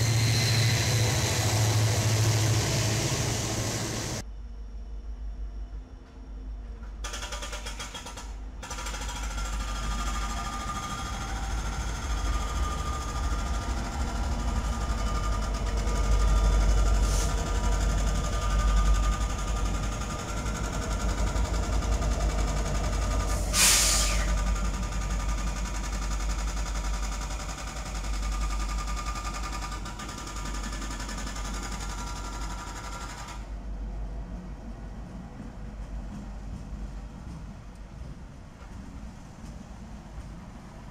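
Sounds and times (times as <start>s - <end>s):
diesel locomotives rumbling: 0.0s - 4.2s, 8.2s - 40.9s
steady whining tones: 9.5s - 23.5s
short sharp hiss: 23.3s - 24.4s.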